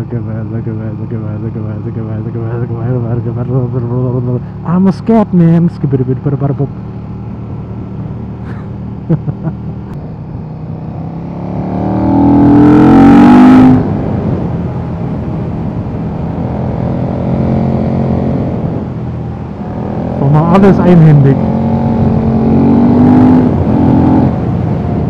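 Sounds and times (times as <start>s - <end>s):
motorcycle engine revving: 1.3s - 25.0s.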